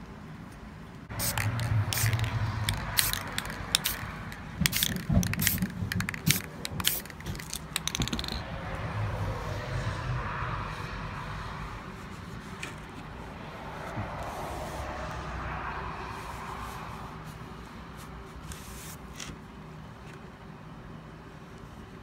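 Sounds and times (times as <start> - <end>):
spray can hissing bursts: 1.1 - 8.4
spray can rattling clicks: 1.1 - 8.5.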